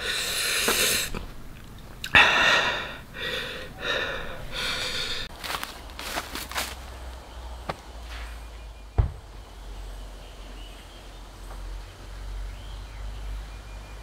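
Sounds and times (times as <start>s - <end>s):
man breathing out hard: 2.1s - 5.3s.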